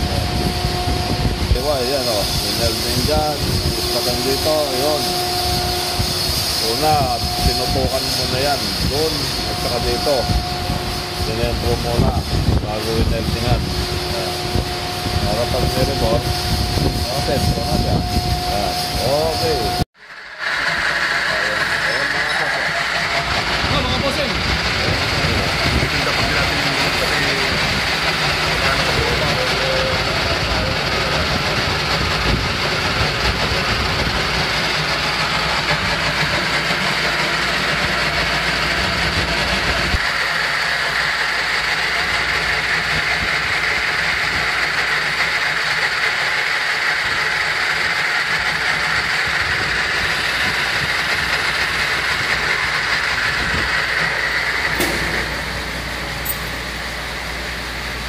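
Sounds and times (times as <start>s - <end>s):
metal lathe cutting: 0.0s - 58.0s.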